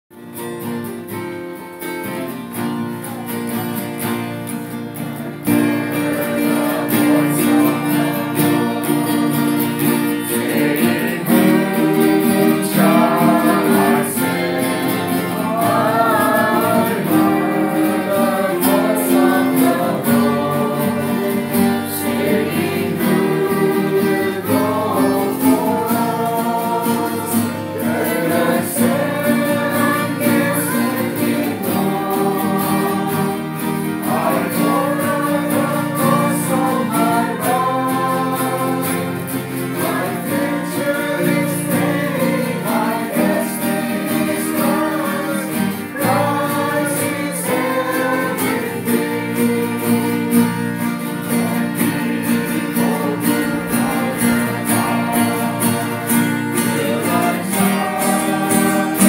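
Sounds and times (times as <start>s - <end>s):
acoustic guitars strumming: 0.1s - 59.0s
group singing worship song: 4.7s - 59.0s.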